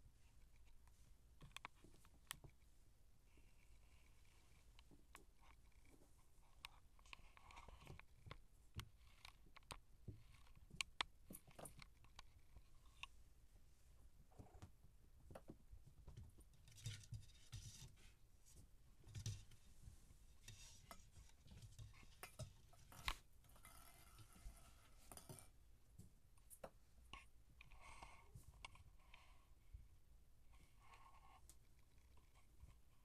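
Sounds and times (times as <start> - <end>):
kittens' paws scratching carpet: 16.0 - 25.4.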